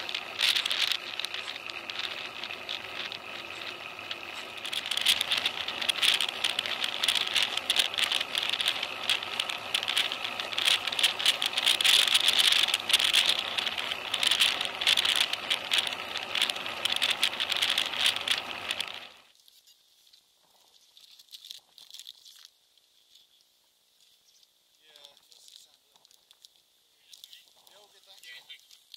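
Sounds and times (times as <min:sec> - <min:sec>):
road and wind noise: 0:00.0 - 0:19.3
road vibration rattle: 0:00.0 - 0:19.3.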